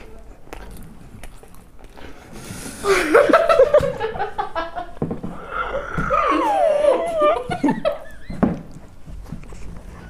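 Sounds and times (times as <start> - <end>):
boys laughing: 2.8 - 8.4.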